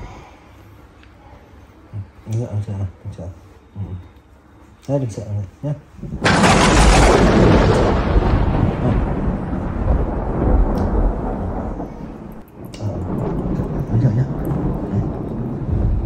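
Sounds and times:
thunder clap rumbling: 6.0s - 16.0s.

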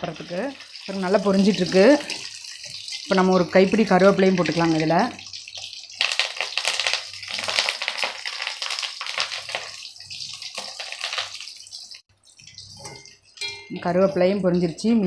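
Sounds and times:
deep-frying sizzle: 0.0s - 14.0s.

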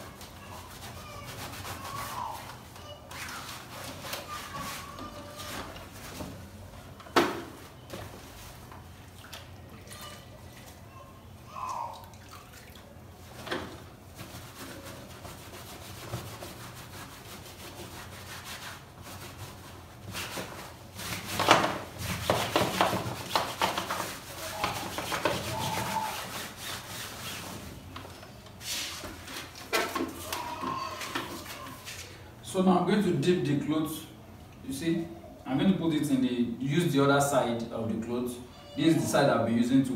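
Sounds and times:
cloth scrubbing fabric: 22.0s - 27.7s.

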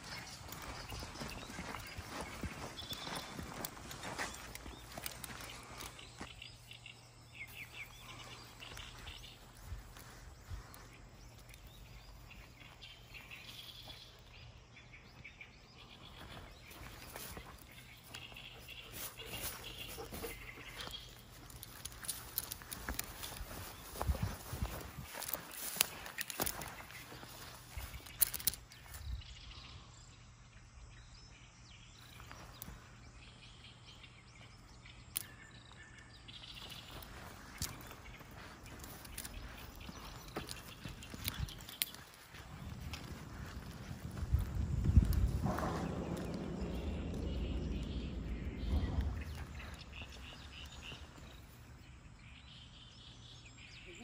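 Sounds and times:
soft footsteps on a path: 0.0s - 29.6s, 32.0s - 54.0s
distant birds chirping: 0.0s - 54.0s
insects: 0.0s - 54.0s
wind rumble: 7.8s - 28.3s, 36.8s - 52.5s.

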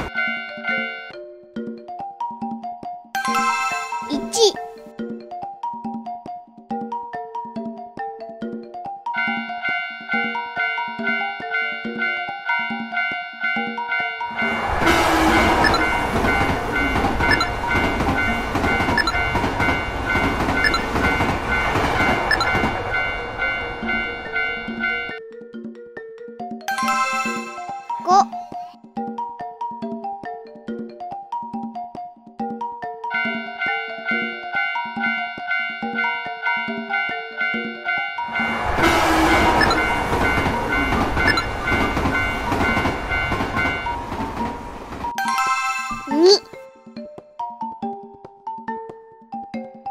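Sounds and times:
level-crossing warning bell: 0.0s - 1.2s, 9.2s - 25.2s, 26.7s - 28.0s, 33.1s - 46.1s
train rumbling on rails: 14.3s - 25.2s, 38.2s - 45.2s.

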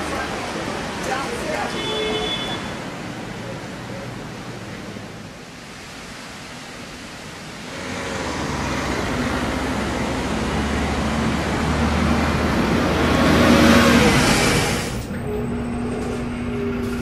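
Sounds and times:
street traffic noise: 0.0s - 17.0s
bus engine humming: 7.6s - 17.0s.

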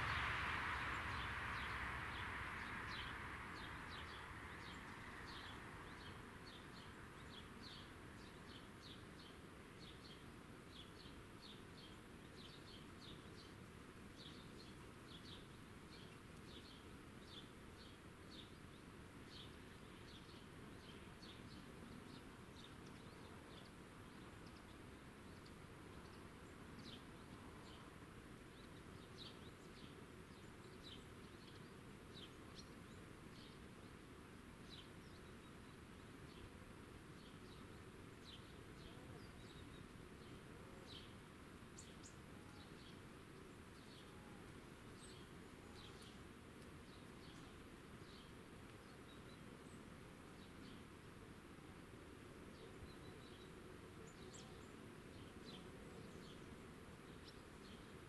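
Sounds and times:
faint rushing noise: 0.0s - 8.5s.

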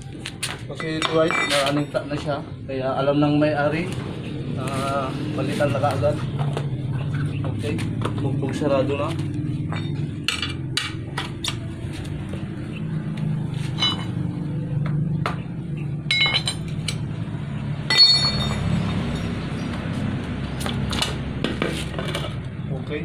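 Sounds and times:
sharp metallic rings: 13.8s - 14.2s, 16.1s - 16.7s, 17.8s - 19.4s.

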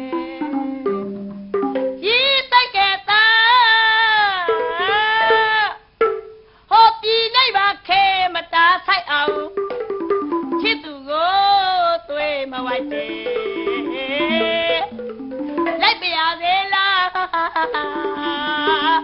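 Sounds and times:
woman singing in high voice: 0.0s - 1.1s, 2.0s - 5.8s, 6.7s - 9.6s, 10.6s - 15.0s, 15.8s - 19.0s
instrumental accompaniment: 0.0s - 2.1s, 4.5s - 6.7s, 9.3s - 10.9s, 12.6s - 16.4s, 17.6s - 19.0s.

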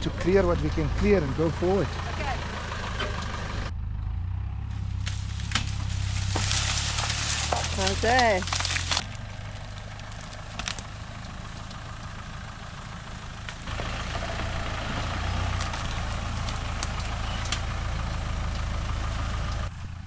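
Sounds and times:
off-road vehicle engine: 0.0s - 20.0s
twigs snapping against vehicle: 4.8s - 11.8s, 13.4s - 13.7s, 15.0s - 17.8s.

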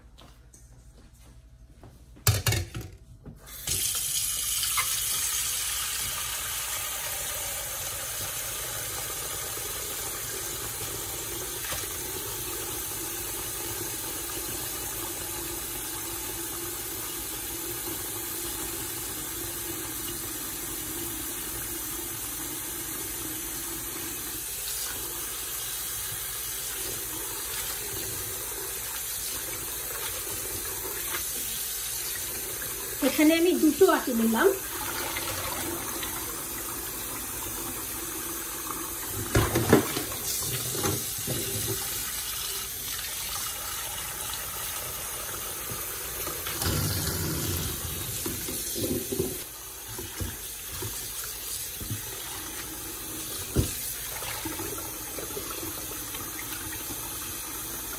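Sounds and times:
tap running into metal bowl: 46.5s - 51.0s.

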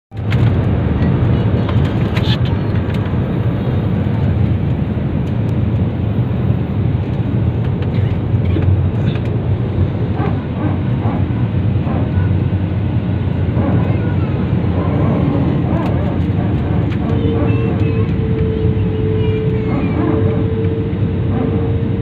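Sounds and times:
jet engine cabin rumble: 0.1s - 22.0s
faint passenger voices: 0.9s - 3.2s, 7.6s - 22.0s.

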